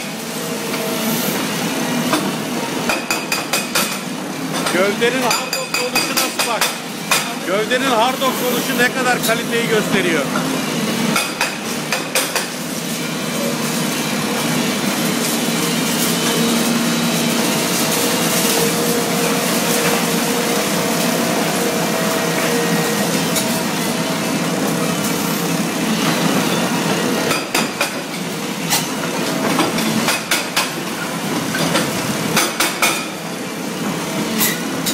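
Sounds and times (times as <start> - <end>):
hydraulic breaker hammering concrete: 2.1 - 4.0, 4.6 - 7.4, 11.1 - 12.6, 27.2 - 28.2, 29.5 - 30.9, 31.5 - 33.2
steel knocking on concrete: 2.9 - 4.0, 4.6 - 7.4, 11.1 - 12.6.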